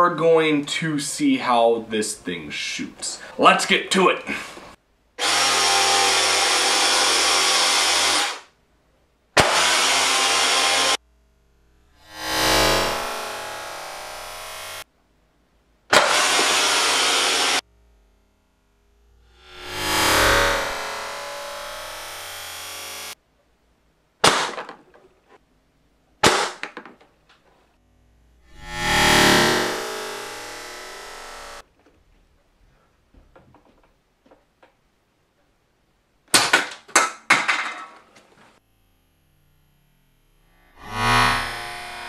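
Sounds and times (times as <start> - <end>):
dart blaster shots: 9.4 - 10.2, 15.9 - 17.6, 24.2 - 24.8, 26.2 - 26.8
air compressors buzzing: 28.6 - 31.7.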